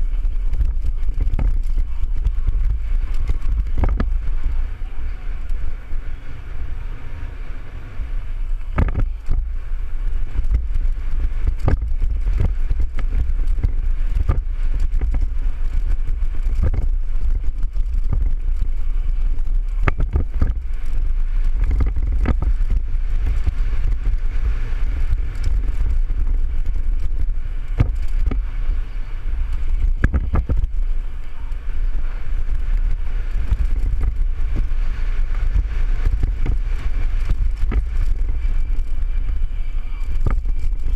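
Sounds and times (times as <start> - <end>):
bike clicks and knocks: 0.0 - 5.8, 8.4 - 40.9
wind buffeting microphone: 0.0 - 40.9.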